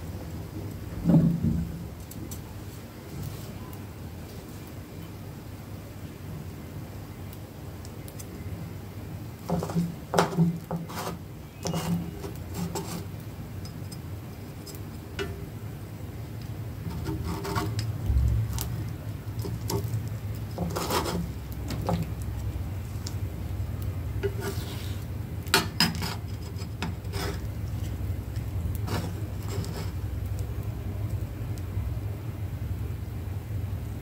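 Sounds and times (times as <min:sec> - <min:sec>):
steady low hum: 0:00.0 - 0:34.0
spatula scraping frying pan: 0:09.5 - 0:14.1, 0:16.8 - 0:18.7, 0:19.4 - 0:22.1, 0:24.2 - 0:28.0, 0:28.7 - 0:30.0.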